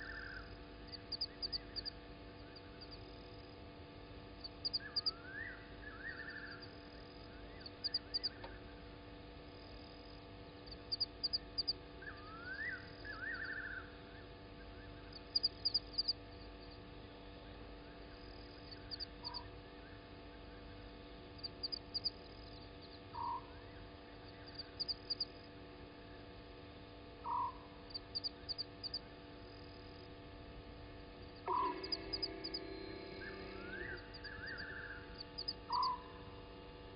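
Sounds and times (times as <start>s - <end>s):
frogs calling: 0.0s - 3.1s, 4.4s - 8.6s, 10.6s - 16.8s, 17.9s - 19.5s, 21.4s - 25.4s, 27.2s - 29.1s, 31.2s - 36.3s
low steady hum: 0.0s - 36.9s
rising whistled calls: 33.2s - 35.1s, 35.7s - 36.1s.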